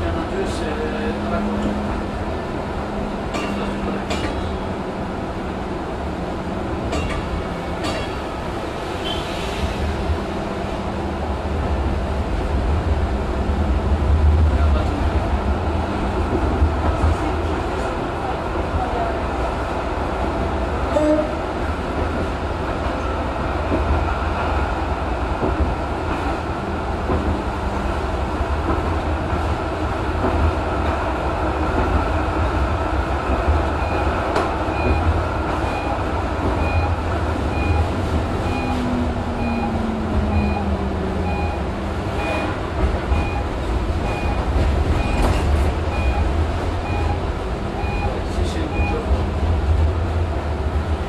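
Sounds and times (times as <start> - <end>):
tram wheels rumbling on rails: 0.0 - 51.0
short high beeps: 36.6 - 41.6, 42.2 - 43.4.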